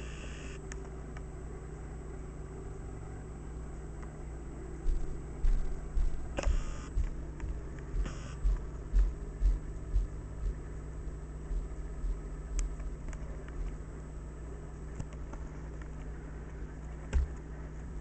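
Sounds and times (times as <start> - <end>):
steady low hum: 0.0 - 18.0
dull low thumps: 4.9 - 13.9.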